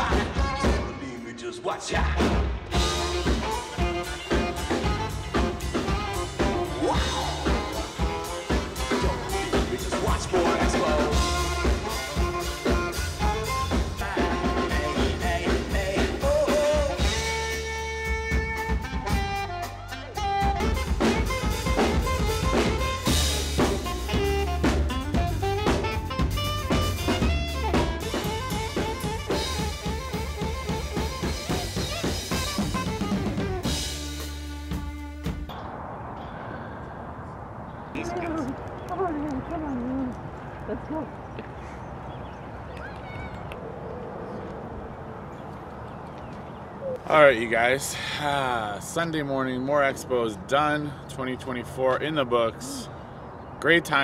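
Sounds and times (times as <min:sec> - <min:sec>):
drum kit beat: 0:00.0 - 0:00.9, 0:02.0 - 0:35.5
saxophone: 0:02.6 - 0:35.5.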